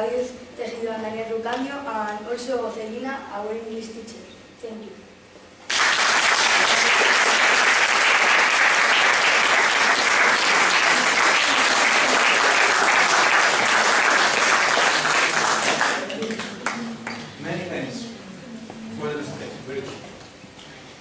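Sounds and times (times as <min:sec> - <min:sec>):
audience applauding: 0:05.7 - 0:17.3.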